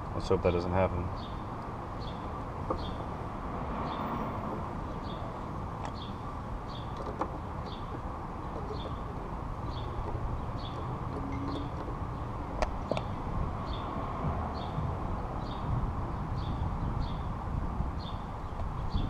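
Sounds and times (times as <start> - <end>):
low background rumble: 1.6 - 19.0
bird chirping: 4.8 - 17.3.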